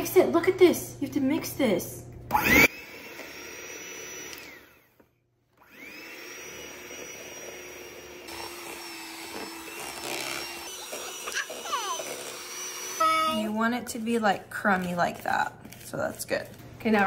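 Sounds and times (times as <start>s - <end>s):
electric hand mixer whining: 2.3s - 15.2s.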